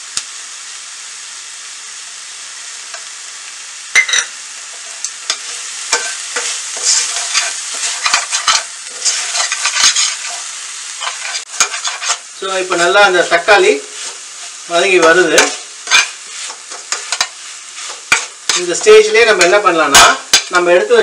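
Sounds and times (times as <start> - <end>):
onions sizzling in oil: 0.0 - 21.0
metal spatula scraping pan: 4.7 - 12.3, 13.2 - 20.6.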